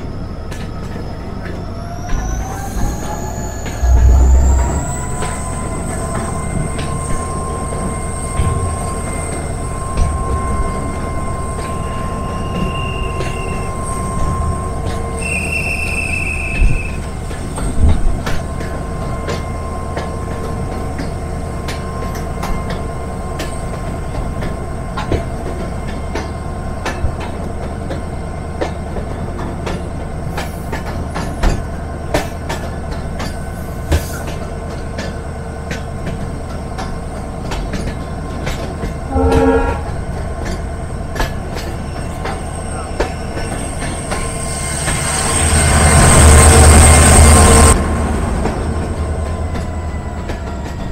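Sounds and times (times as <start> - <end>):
train rumbling: 0.0 - 50.9
train horn toot: 3.8 - 5.2, 15.2 - 17.1, 39.1 - 40.2
thin wheel squeal: 10.8 - 17.2
wheels clicking over rail joints: 14.2 - 46.7.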